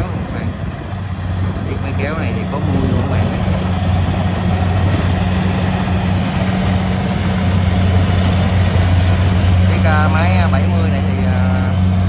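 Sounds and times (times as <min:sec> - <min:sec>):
combine harvester diesel engine: 0:00.0 - 0:12.0.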